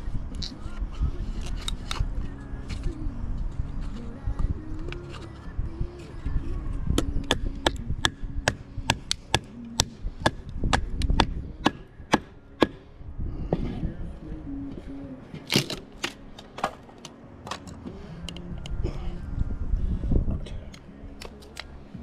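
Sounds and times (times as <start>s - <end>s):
hatchet chopping wood: 7.0s - 12.8s.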